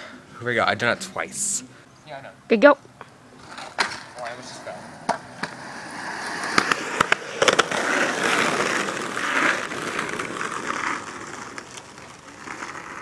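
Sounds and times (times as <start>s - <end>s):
skateboard clacks: 3.4s - 4.4s, 5.0s - 13.0s
skateboard wheels rolling: 3.4s - 13.0s.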